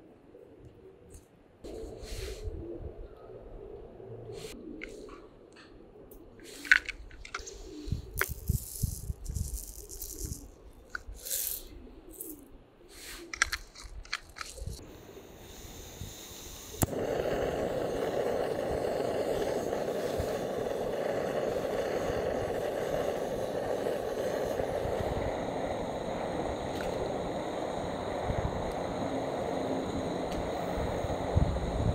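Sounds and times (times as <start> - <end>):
seeds rattling into metal pot: 6.5 - 12.4, 13.2 - 14.8
gas burner hissing: 6.5 - 31.9.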